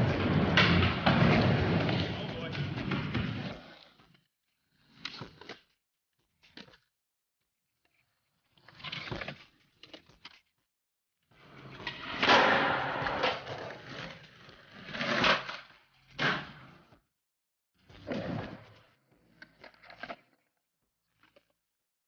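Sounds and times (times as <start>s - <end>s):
skateboard wheels rolling: 0.0s - 4.0s, 11.4s - 15.5s
skateboard pops and landings: 11.9s - 14.0s.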